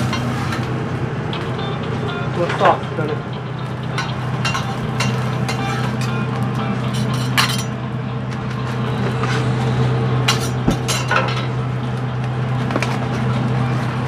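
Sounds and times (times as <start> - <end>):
metal utensils clinking: 0.0 - 0.7, 3.9 - 6.2, 6.9 - 7.8, 10.3 - 11.6
low machine hum: 0.0 - 14.0.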